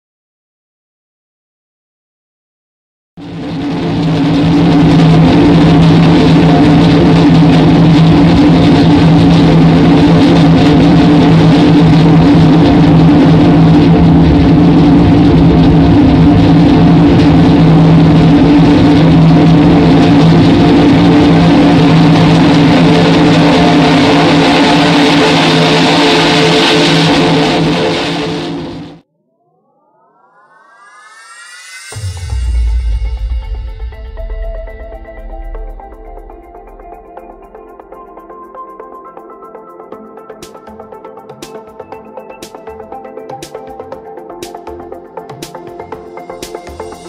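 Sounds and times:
loud music with held chord: 31.9 - 47.0.

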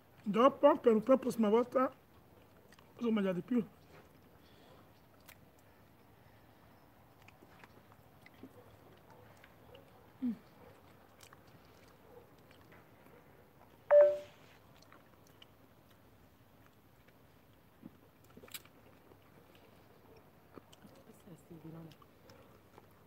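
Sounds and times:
faint chewing: 1.6 - 23.0.

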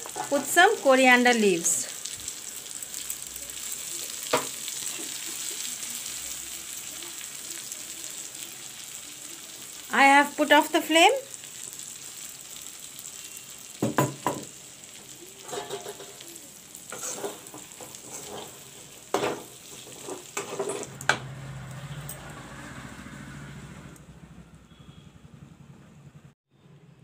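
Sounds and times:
metal spatula scraping a pan: 0.0 - 0.8, 15.4 - 21.0
oil sizzling: 0.0 - 23.8.

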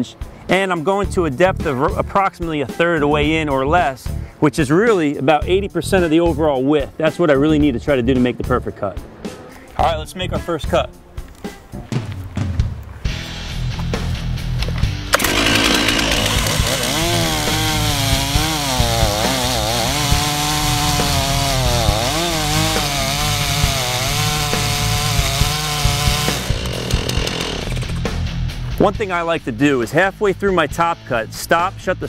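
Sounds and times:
chainsaw cutting wood: 15.1 - 28.2.

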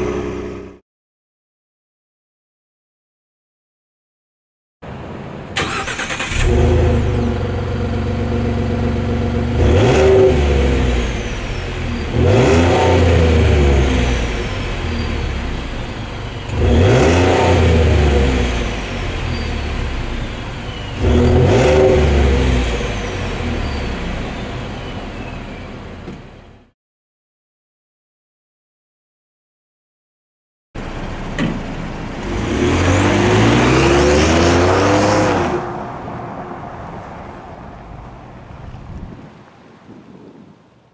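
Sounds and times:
truck engine idling and revving: 0.0 - 0.8, 4.8 - 26.7, 30.8 - 39.1
engine cranking: 5.6 - 6.6.

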